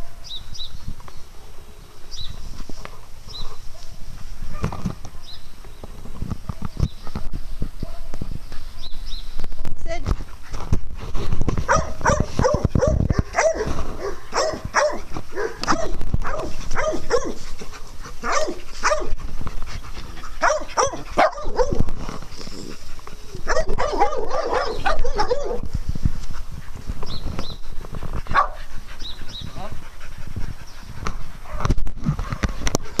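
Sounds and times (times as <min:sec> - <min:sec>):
small dogs barking: 0:11.6 - 0:17.5, 0:18.1 - 0:19.2, 0:20.2 - 0:21.9, 0:23.4 - 0:25.6, 0:28.3 - 0:28.7.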